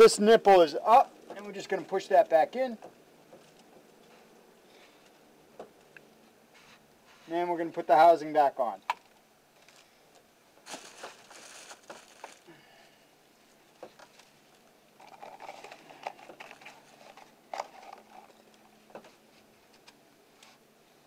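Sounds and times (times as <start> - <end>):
gloves rustling and scraping: 6.2 - 7.7, 9.5 - 20.7.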